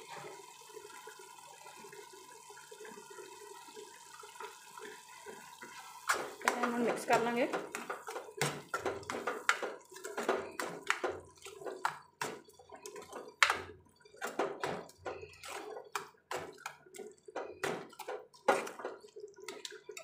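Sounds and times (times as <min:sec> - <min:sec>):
spoon scraping metal pan: 0:05.7 - 0:20.0.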